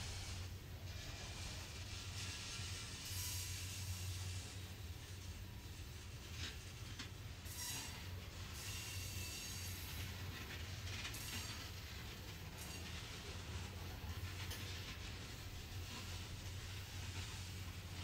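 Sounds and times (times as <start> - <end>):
thin wheel squeal: 0.0 - 5.3, 7.4 - 10.3, 11.1 - 11.8
train hiss and clatter: 0.0 - 18.0
train wheels rumbling on rails: 0.0 - 18.0.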